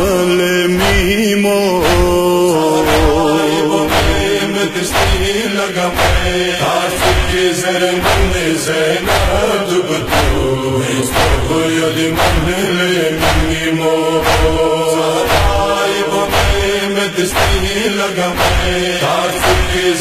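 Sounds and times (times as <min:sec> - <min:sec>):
men chanting together: 0:00.0 - 0:20.0
steady heavy beat: 0:00.0 - 0:20.0.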